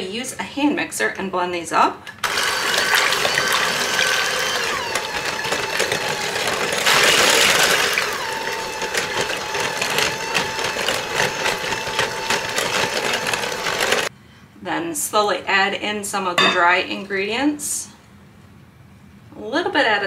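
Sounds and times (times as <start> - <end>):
electric hand mixer whirring: 2.2 - 14.1.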